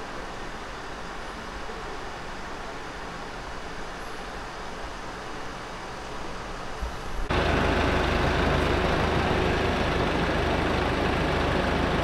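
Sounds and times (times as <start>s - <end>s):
outdoor background noise: 0.0s - 12.0s
truck engine idling: 7.3s - 12.0s.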